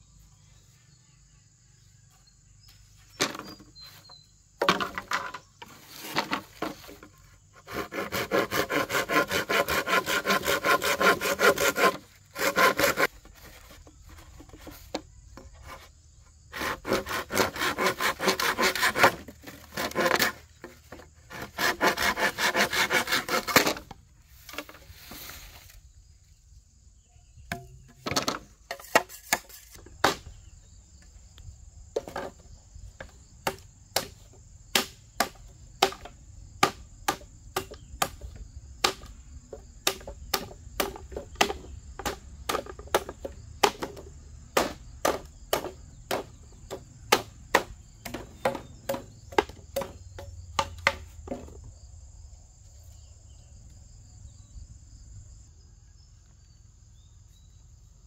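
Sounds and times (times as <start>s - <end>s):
rough rasping strokes: 5.6s - 15.9s, 16.5s - 25.8s
sharp knocks: 39.8s - 51.6s.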